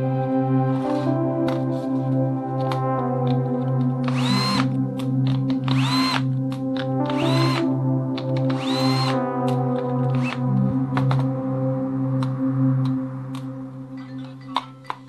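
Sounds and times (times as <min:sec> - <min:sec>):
background music: 0:00.0 - 0:15.0
cordless drill motor whine: 0:04.0 - 0:04.7, 0:05.7 - 0:06.2, 0:07.1 - 0:07.6, 0:08.5 - 0:09.2, 0:10.1 - 0:10.4.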